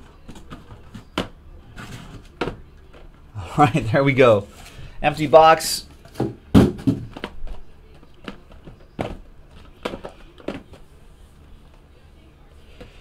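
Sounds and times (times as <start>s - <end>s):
cardboard boxes knocking on a table: 6.1s - 7.4s.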